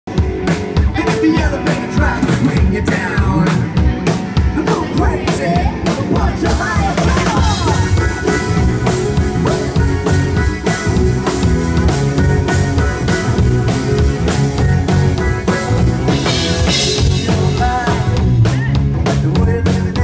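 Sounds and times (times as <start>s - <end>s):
drum kit beat: 0.1s - 20.0s
live rock band playing: 0.1s - 20.0s.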